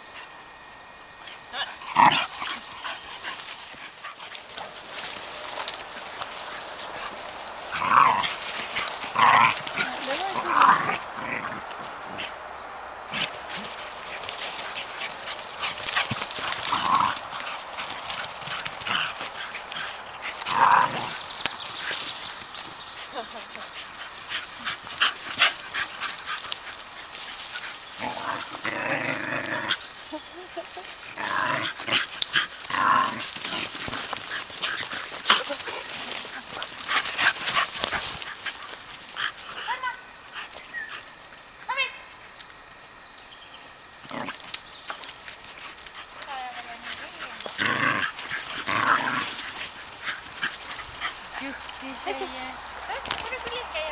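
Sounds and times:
paws scuffing dry leaves: 0.0s - 53.9s
dog steps on pine needles: 0.8s - 12.3s, 13.1s - 28.5s, 30.5s - 41.5s, 44.0s - 53.9s
dog growling: 1.5s - 12.4s, 13.1s - 22.0s, 27.9s - 39.4s, 44.0s - 44.6s, 45.9s - 52.3s.

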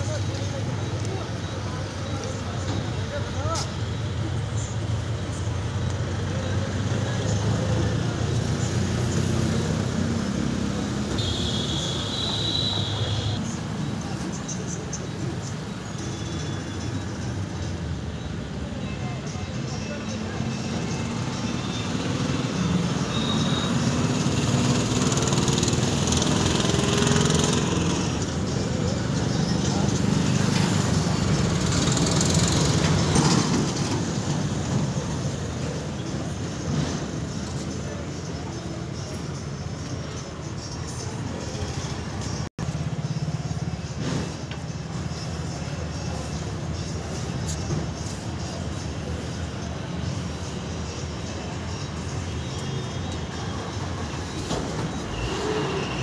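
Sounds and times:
traffic engine rumble: 0.0s - 56.0s.

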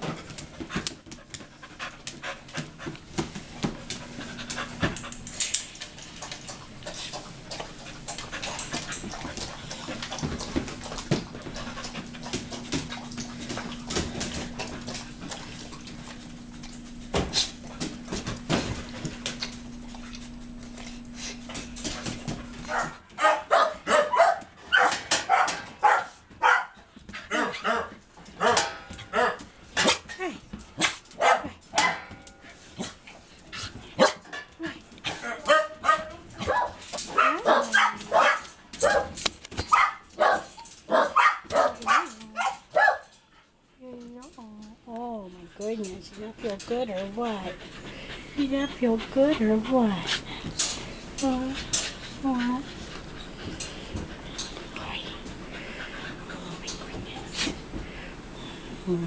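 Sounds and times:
dogs panting: 0.0s - 23.3s, 45.3s - 58.8s
steady hum: 1.4s - 23.2s
dog barking rapidly: 22.7s - 30.0s, 30.8s - 32.0s, 35.5s - 43.1s.

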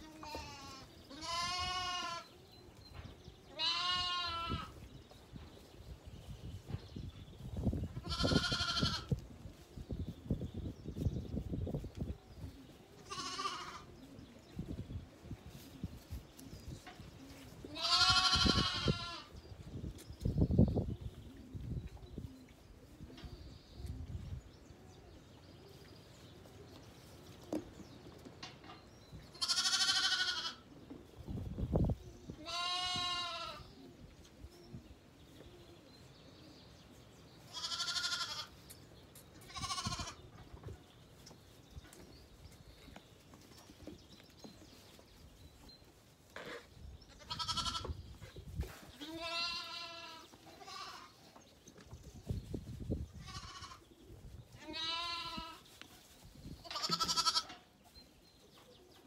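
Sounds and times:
lambs bleating: 0.0s - 2.3s, 3.5s - 4.7s, 8.0s - 9.2s, 13.1s - 13.9s, 17.7s - 19.3s, 29.4s - 30.6s, 32.4s - 33.6s, 37.5s - 38.5s, 39.5s - 40.2s, 47.2s - 47.9s, 49.0s - 51.2s, 54.6s - 55.6s, 56.6s - 57.6s.

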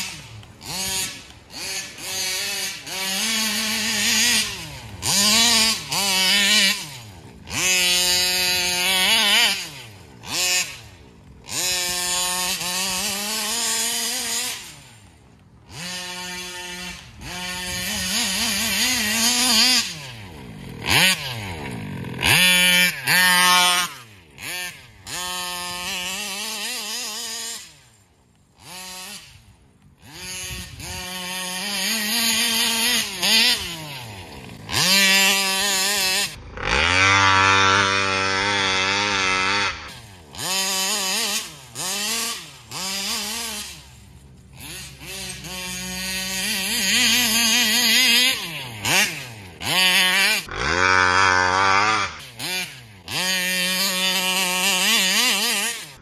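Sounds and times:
two-stroke engine revving: 0.0s - 56.0s.

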